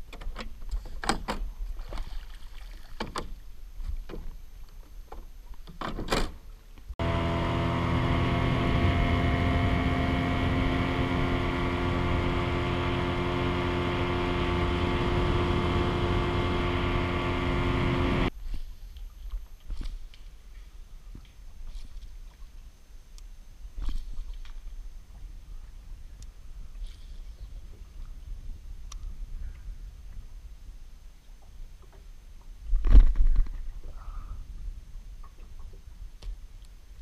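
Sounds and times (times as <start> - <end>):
outboard motor running: 7.0 - 18.3.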